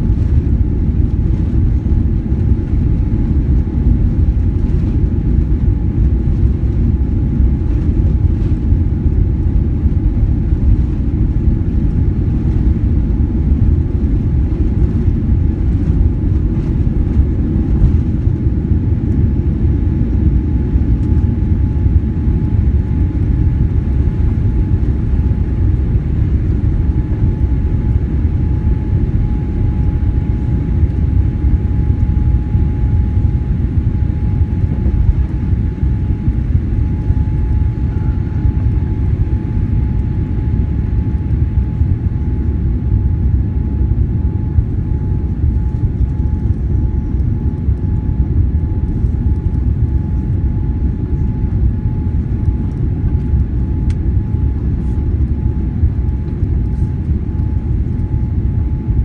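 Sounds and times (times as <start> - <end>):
faint steady whine: 0.0 - 59.0
runway rumble: 9.7 - 19.3.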